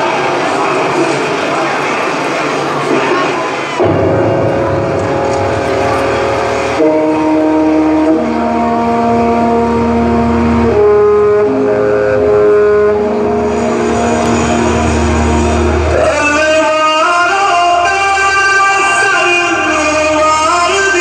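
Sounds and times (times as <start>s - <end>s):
synthesizer notes over loudspeakers: 0.0s - 21.0s
person singing: 15.9s - 21.0s.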